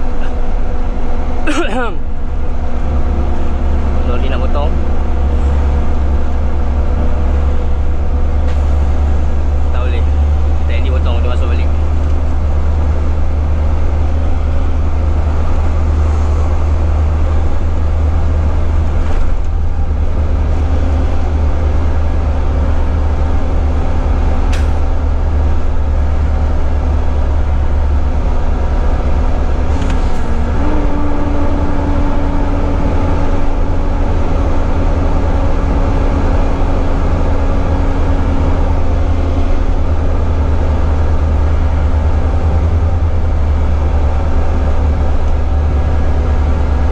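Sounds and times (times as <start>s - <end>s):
truck diesel engine drone: 0.0s - 46.9s
tyre and road noise: 0.0s - 46.9s.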